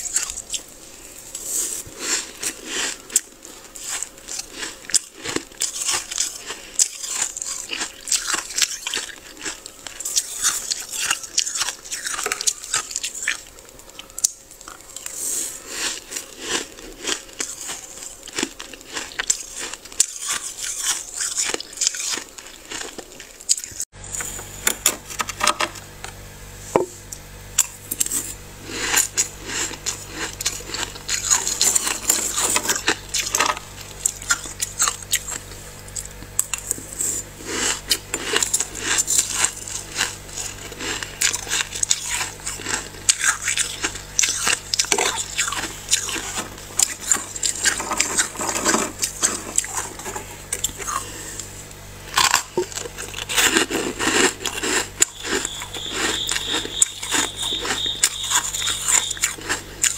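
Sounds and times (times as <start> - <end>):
freezer frost being scraped: 0.0 - 13.4, 27.8 - 35.4, 36.4 - 51.4, 52.1 - 59.9.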